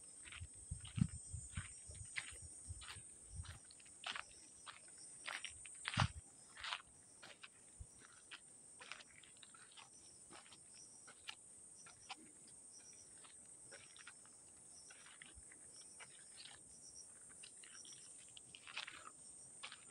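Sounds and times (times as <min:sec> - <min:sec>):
insects chirping: 0:00.0 - 0:19.9
footsteps on gravel: 0:00.2 - 0:12.3, 0:17.2 - 0:19.9.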